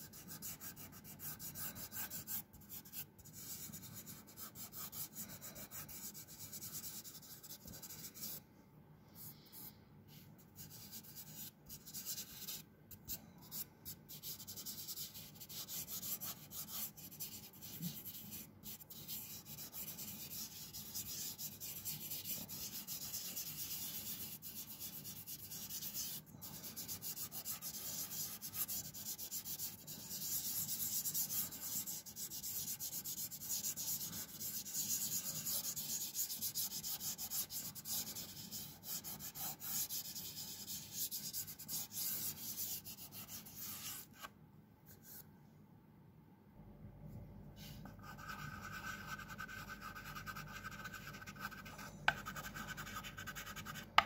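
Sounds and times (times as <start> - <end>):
fingertips rubbing on paper: 14.1 - 44.3.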